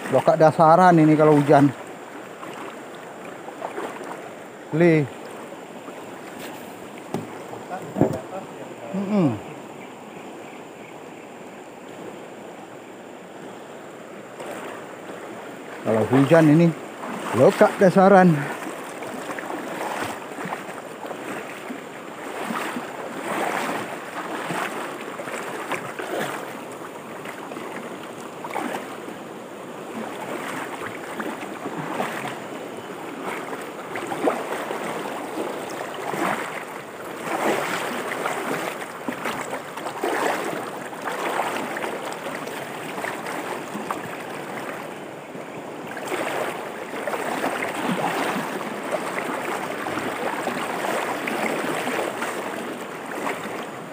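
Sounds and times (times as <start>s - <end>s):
river rushing over stones: 0.0s - 10.0s, 10.6s - 53.9s.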